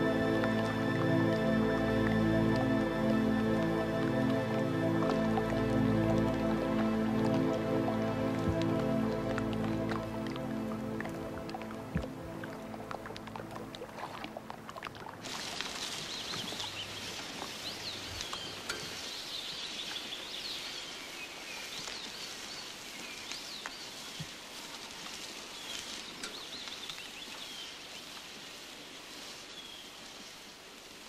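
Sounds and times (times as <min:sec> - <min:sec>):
steady outdoor hiss: 0:00.0 - 0:31.0
small birds chirping: 0:15.8 - 0:24.4, 0:25.4 - 0:28.2.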